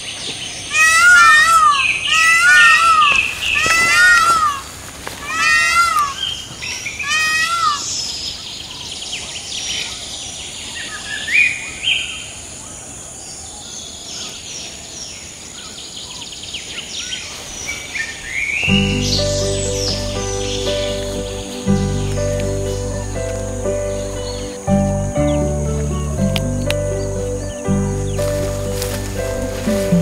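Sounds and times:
birds calling: 0:00.0 - 0:30.0
bird chirps: 0:13.6 - 0:30.0.

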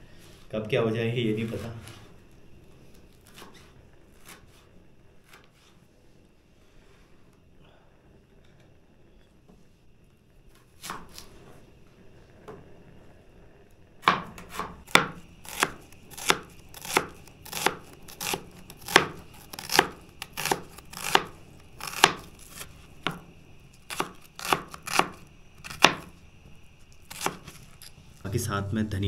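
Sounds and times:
knife chopping vegetables: 0:10.8 - 0:11.2, 0:14.0 - 0:23.2, 0:23.9 - 0:26.1, 0:27.1 - 0:27.6.

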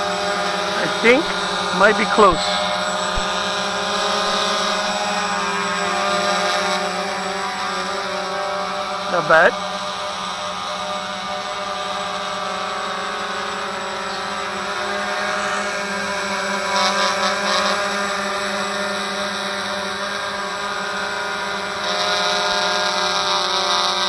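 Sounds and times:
drone propellers whining: 0:00.0 - 0:17.3.

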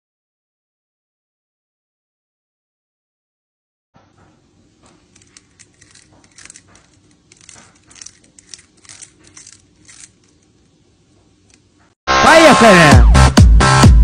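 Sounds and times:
cat gnawing on wicker: 0:04.8 - 0:10.7.

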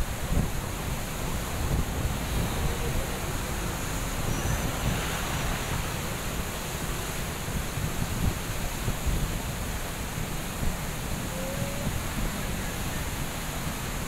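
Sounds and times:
floodwater rushing: 0:00.0 - 0:14.0
wind buffeting microphone: 0:00.0 - 0:14.0.

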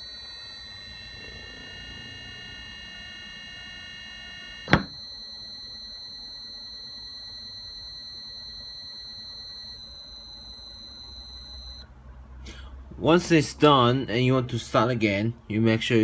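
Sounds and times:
electric motor high-pitched whine: 0:00.0 - 0:11.8.

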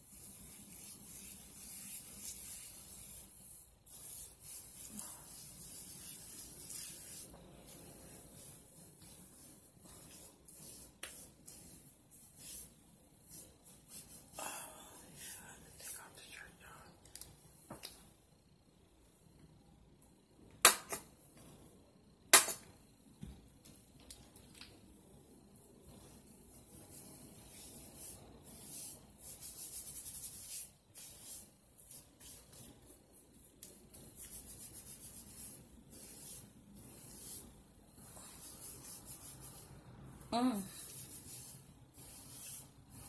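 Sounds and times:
squishing hair rubbing: 0:00.0 - 0:14.4, 0:24.4 - 0:43.0.

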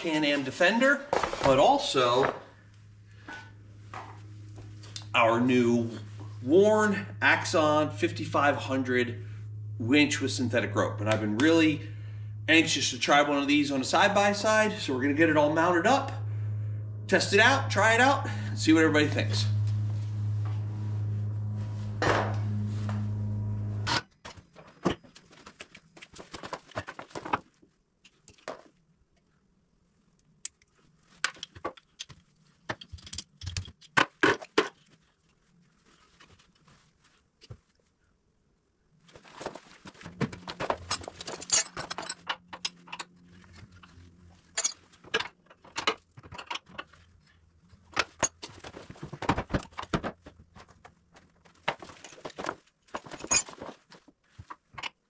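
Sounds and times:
held musical tone: 0:02.8 - 0:24.0.

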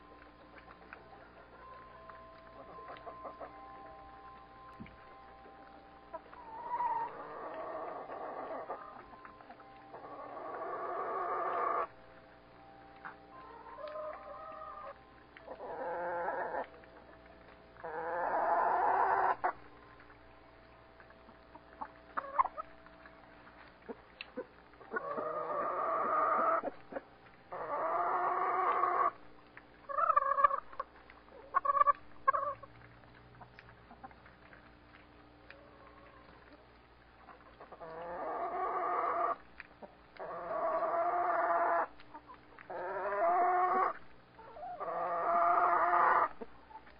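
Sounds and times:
chickens calling: 0:00.0 - 0:46.9
chicken clucks: 0:02.6 - 0:03.7, 0:06.1 - 0:09.3, 0:09.9 - 0:11.9, 0:13.4 - 0:17.1, 0:17.8 - 0:19.6, 0:21.5 - 0:22.7, 0:23.8 - 0:29.2, 0:29.8 - 0:32.7, 0:37.2 - 0:46.9.

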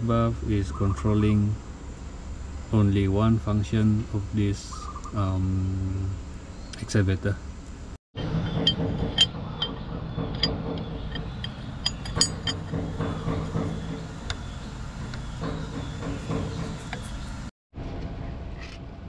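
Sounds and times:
low mechanical hum: 0:00.0 - 0:19.0
tool clinking on steel: 0:08.4 - 0:14.4.

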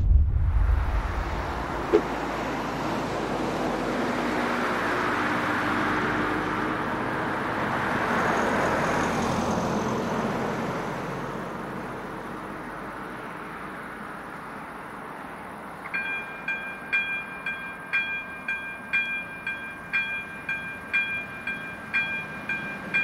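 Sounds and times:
vehicle road noise passing: 0:00.0 - 0:16.4.

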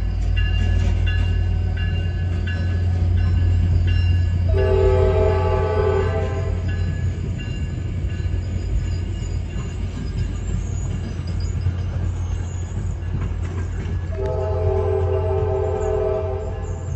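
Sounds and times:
train rumbling: 0:00.0 - 0:16.9
train air horn chord: 0:04.5 - 0:06.7, 0:14.1 - 0:16.8.

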